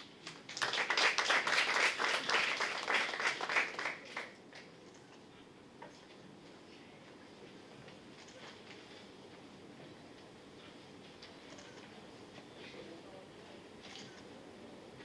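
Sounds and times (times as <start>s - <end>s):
audience clapping: 0.0s - 4.8s.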